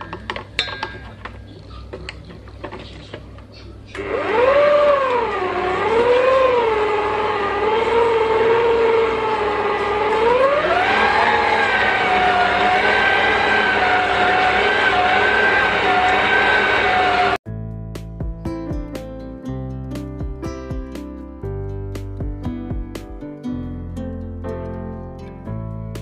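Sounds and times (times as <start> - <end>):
stand mixer motor whining: 4.0 - 17.4.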